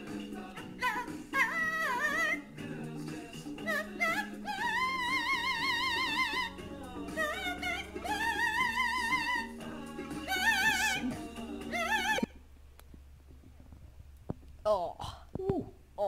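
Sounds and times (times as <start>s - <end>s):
parrot singing operatically: 0.8s - 2.5s, 3.6s - 12.3s.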